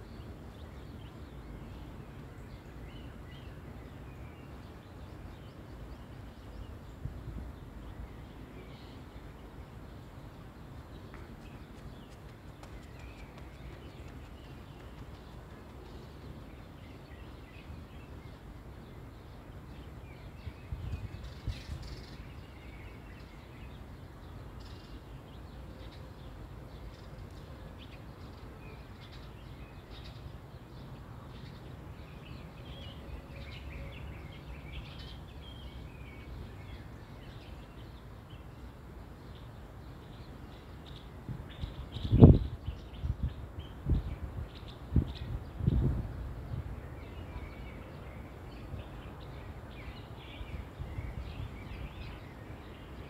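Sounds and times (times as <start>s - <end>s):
small birds chirping: 0.0s - 53.0s
wind rumble on microphone: 4.5s - 25.1s, 40.8s - 53.0s.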